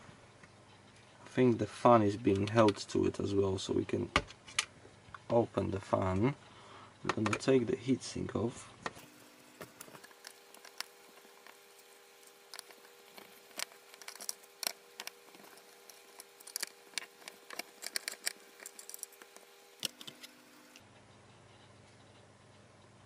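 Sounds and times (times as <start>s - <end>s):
faint steady hum: 0.0s - 23.0s
screwdriver metallic clicks and scrapes: 9.8s - 20.8s.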